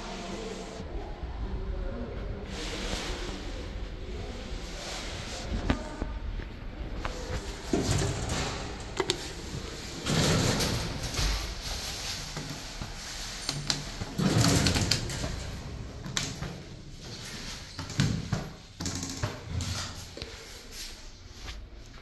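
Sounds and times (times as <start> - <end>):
lift doors sliding: 7.4 - 18.6.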